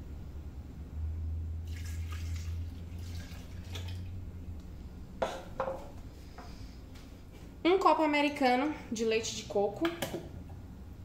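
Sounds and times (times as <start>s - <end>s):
milk pouring into blender jar: 1.6s - 4.1s.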